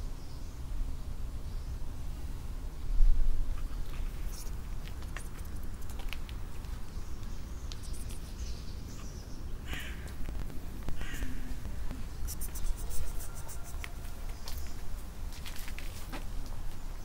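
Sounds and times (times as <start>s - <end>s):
wind rumble on microphone: 1.8s - 5.9s
light scuffing steps: 3.7s - 8.2s, 13.8s - 16.8s
harsh bird calls: 6.9s - 10.3s, 10.9s - 14.8s.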